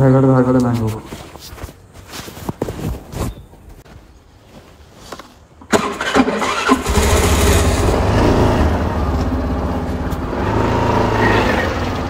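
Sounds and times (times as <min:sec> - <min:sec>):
scooter engine low rumble: 0:06.4 - 0:12.0.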